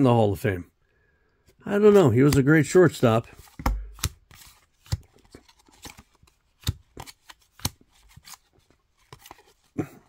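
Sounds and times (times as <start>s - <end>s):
trading cards snapping: 3.4s - 8.5s.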